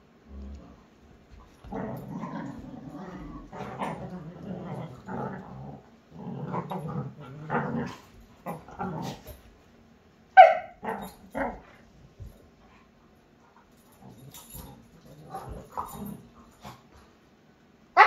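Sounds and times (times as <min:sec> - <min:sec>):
dogs growling: 0:00.3 - 0:09.4, 0:10.8 - 0:11.8, 0:13.9 - 0:16.9
dog barking: 0:10.4 - 0:10.8.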